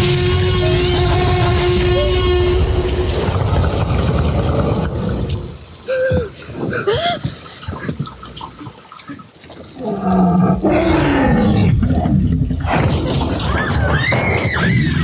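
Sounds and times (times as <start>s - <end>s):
dinosaur growl-roar: 3.1s - 5.6s, 9.8s - 13.9s.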